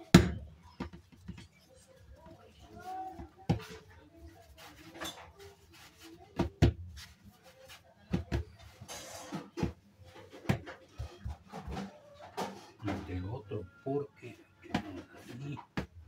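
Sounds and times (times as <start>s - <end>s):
dough thumping on wooden table: 0.1s - 1.4s.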